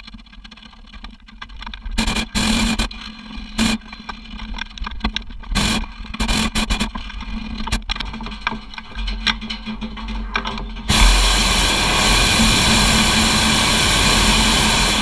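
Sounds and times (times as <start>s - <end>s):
steady low hum: 9.7s - 15.0s
balloon burner blasts: 10.9s - 15.0s.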